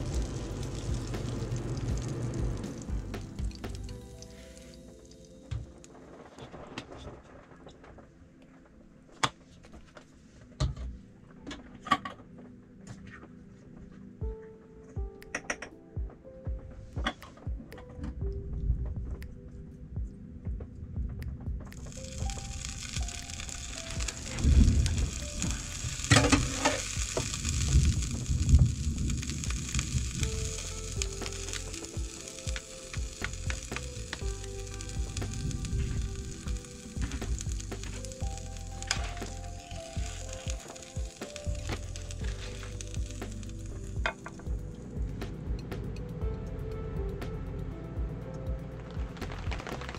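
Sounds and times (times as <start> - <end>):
food sizzling in a hot pan: 0.0 - 4.8, 21.9 - 44.0.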